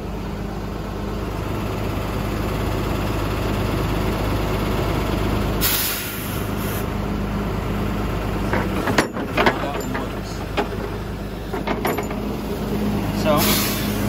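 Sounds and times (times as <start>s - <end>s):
diesel engine running: 0.0s - 14.0s.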